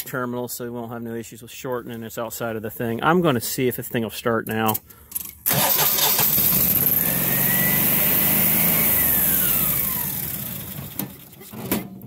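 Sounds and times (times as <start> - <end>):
generator engine whine: 5.5 - 11.4.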